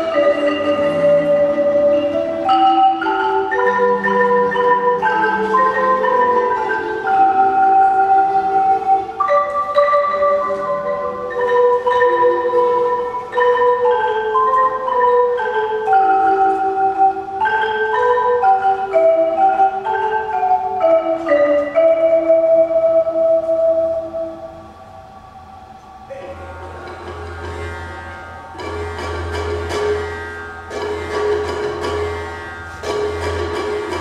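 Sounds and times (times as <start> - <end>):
marimba ensemble playing: 0.0 - 34.0.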